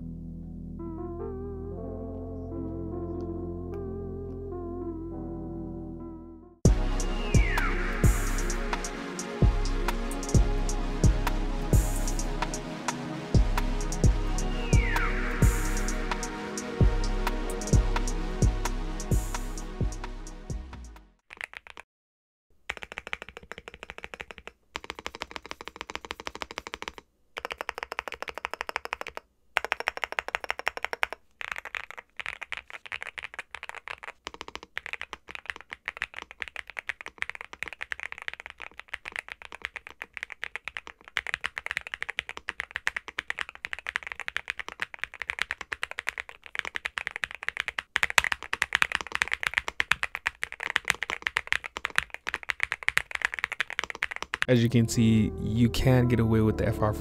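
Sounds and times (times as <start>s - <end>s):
mechanical keyboard typing: 21.3s - 21.8s, 22.7s - 54.5s.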